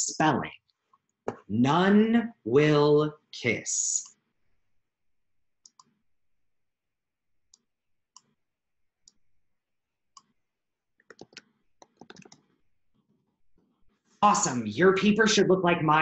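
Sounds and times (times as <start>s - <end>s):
keyboard keystrokes: 11.0s - 12.5s.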